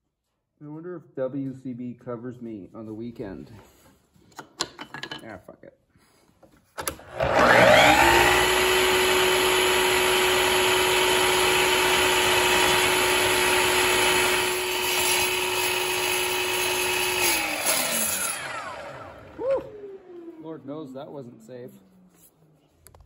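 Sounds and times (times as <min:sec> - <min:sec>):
miter saw motor whining: 0:07.1 - 0:20.4
saw blade cutting plastic: 0:11.2 - 0:19.2.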